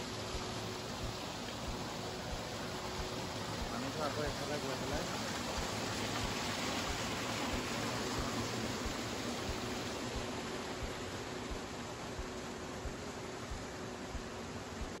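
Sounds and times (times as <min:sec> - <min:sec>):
water running over rocks: 0:00.0 - 0:15.0.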